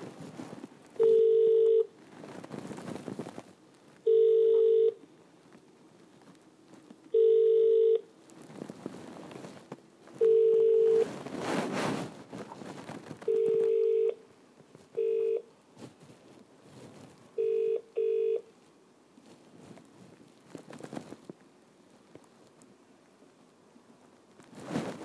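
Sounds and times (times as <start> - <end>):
rustling noise: 0.0 - 25.0
electronic telephone beeps: 1.0 - 1.9, 4.1 - 5.0, 7.2 - 8.0, 10.2 - 11.1, 13.3 - 14.2, 15.0 - 15.4, 17.4 - 18.4.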